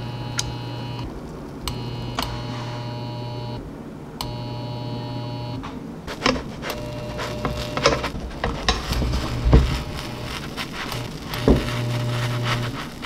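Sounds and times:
low electric hum: 0.0s - 13.0s
spatula knocking and scraping pan: 6.1s - 10.0s
batter sizzling in a frying pan: 6.1s - 13.0s.

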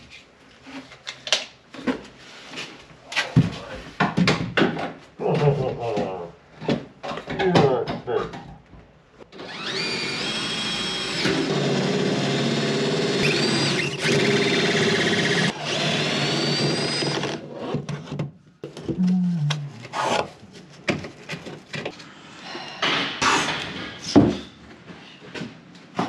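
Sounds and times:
power drill whining: 9.4s - 17.4s.

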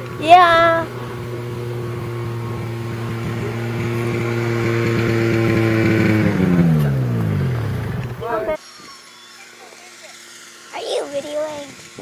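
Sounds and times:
vehicle engine running: 0.0s - 8.6s.

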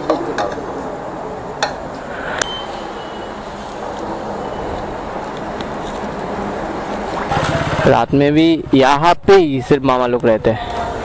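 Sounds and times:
background rush: 0.0s - 11.0s
high beep: 2.2s - 3.6s, 4.4s - 4.8s.

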